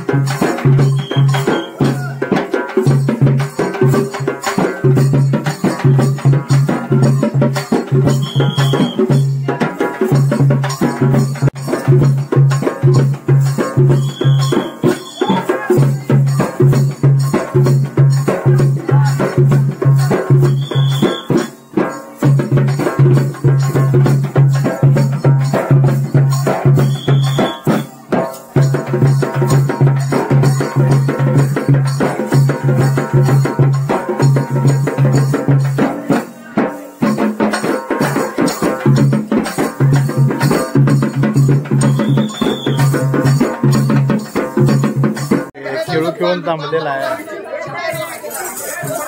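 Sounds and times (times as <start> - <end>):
fast drumbeat: 0.0 - 47.2, 47.8 - 49.0
jingling metal discs shaken: 47.0 - 49.0.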